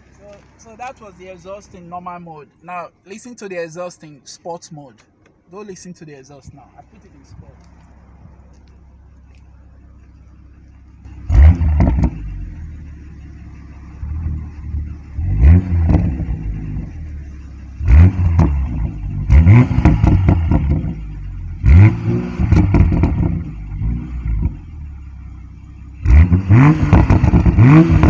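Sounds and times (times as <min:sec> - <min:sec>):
exhaust cracks: 0:05.0 - 0:28.0
car engine revving: 0:06.8 - 0:28.0.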